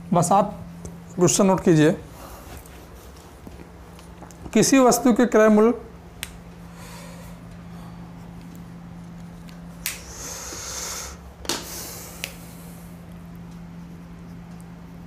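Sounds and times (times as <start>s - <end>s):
steady low hum: 0.0s - 15.0s
marker rubbing on whiteboard: 13.7s - 15.0s.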